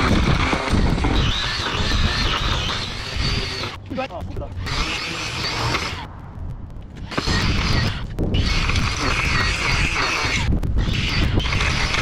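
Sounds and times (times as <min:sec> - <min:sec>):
edger blade grinding turf: 0:07.1 - 0:12.0.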